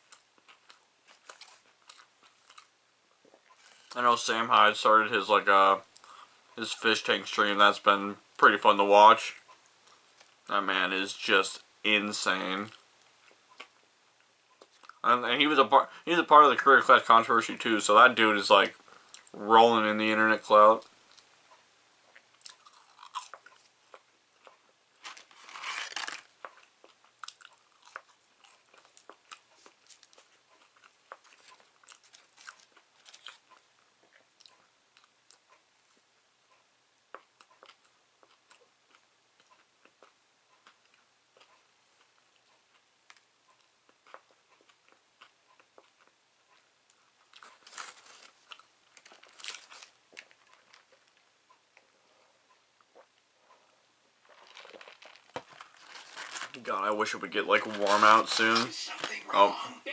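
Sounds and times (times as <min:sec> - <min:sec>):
chewing and crunching food: 0:00.0 - 0:04.0, 0:12.6 - 0:15.0, 0:20.8 - 0:59.1.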